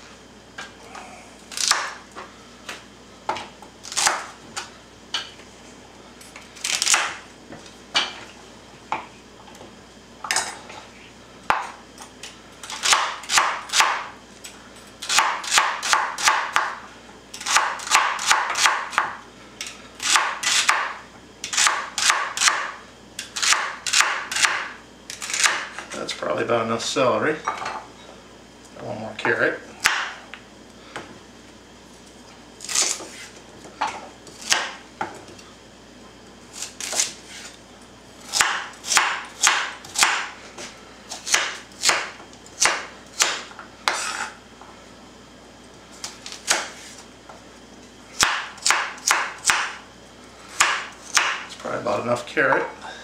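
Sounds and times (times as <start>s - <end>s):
knife chopping celery on wood: 1.5s - 2.0s, 3.3s - 4.7s, 6.6s - 7.2s, 12.6s - 14.1s, 15.0s - 16.8s, 17.4s - 19.2s, 20.0s - 25.9s, 29.8s - 30.2s, 32.6s - 34.8s, 36.5s - 37.5s, 38.2s - 44.3s, 46.0s - 47.0s, 48.2s - 49.8s, 50.5s - 51.6s.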